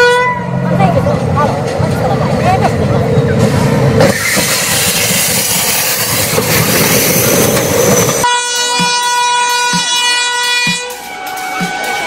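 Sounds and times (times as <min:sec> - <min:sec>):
locomotive horn: 0:00.0 - 0:00.6, 0:08.2 - 0:12.0
train crashing into car: 0:04.0 - 0:06.8.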